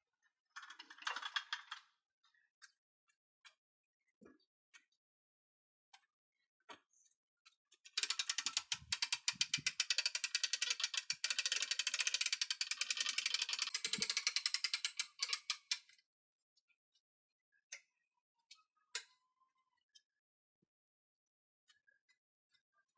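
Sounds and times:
winch ratchet clicking: 0:08.0 - 0:15.8.

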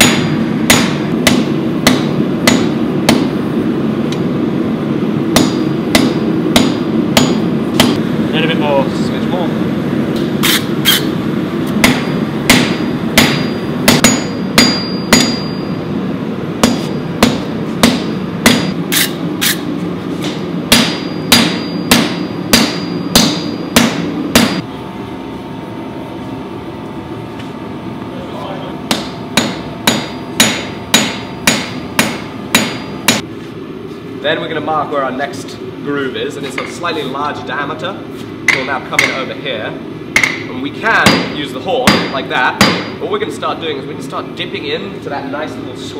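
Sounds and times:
hammer striking metal on anvil: 0:00.0 - 0:03.4, 0:05.3 - 0:08.0, 0:11.8 - 0:15.8, 0:16.6 - 0:19.6, 0:20.2 - 0:24.6, 0:28.9 - 0:33.3, 0:38.5 - 0:39.3, 0:40.2 - 0:43.0
steady hum: 0:00.0 - 0:45.9.

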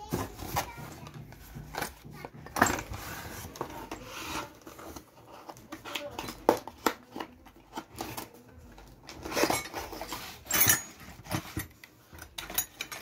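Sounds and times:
cardboard packaging rubbing: 0:01.6 - 0:05.7.

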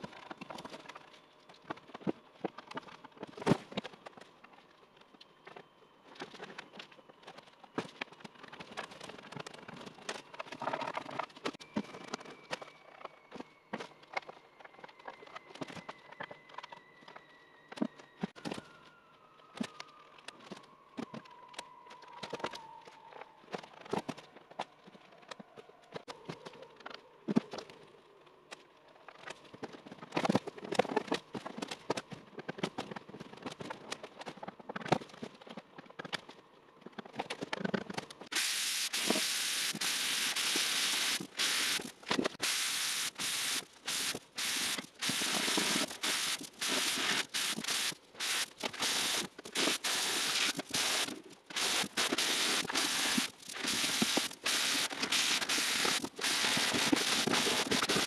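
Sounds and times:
aerosol spray can hissing: 0:38.3 - 0:58.0.

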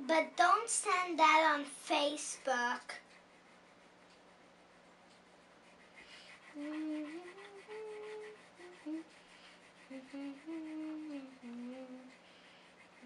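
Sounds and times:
marker scratching on paper: 0:00.2 - 0:11.3, 0:12.0 - 0:13.0
girl humming: 0:06.5 - 0:09.2, 0:09.8 - 0:12.2.

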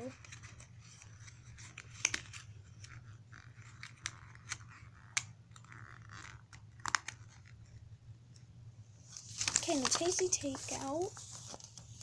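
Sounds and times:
soft rustling: 0:09.0 - 0:12.0.

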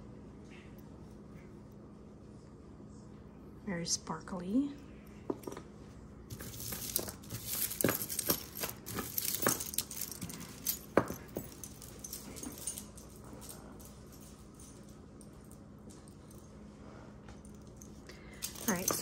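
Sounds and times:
jewelry clicking and rattling: 0:06.3 - 0:16.5, 0:17.4 - 0:19.0.

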